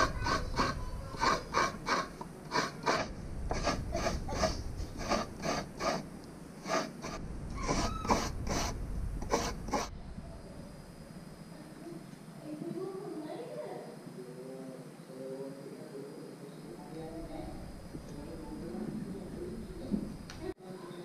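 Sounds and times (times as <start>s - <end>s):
rhythmic rasping on wood: 0.0s - 9.9s.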